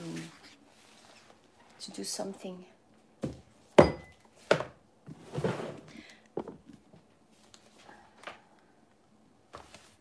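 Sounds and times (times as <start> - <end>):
pages rustling: 9.5 - 10.0.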